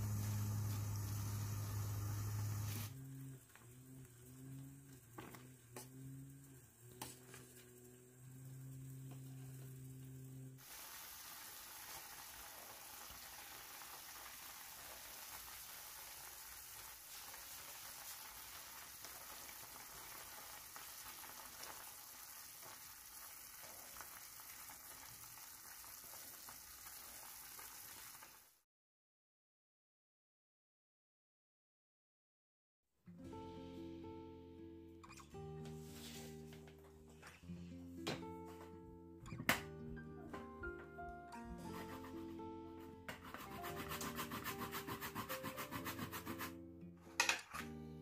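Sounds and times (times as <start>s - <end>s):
pot boiling and bubbling: 0.0s - 28.6s.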